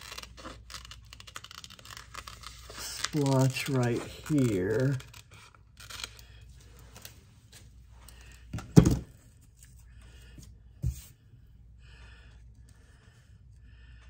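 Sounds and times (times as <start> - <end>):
paper rustling: 0.0 - 7.8
thump on table: 8.6 - 9.1.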